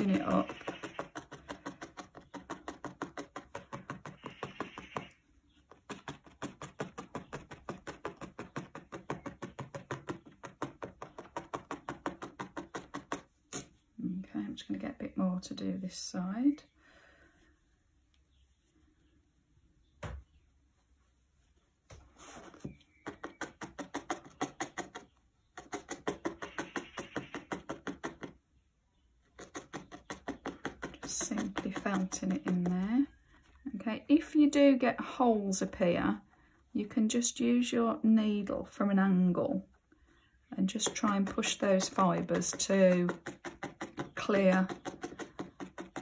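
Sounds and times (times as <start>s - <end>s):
felting needle tapping: 0.0s - 13.7s, 22.9s - 28.4s, 29.2s - 33.6s, 40.6s - 46.0s.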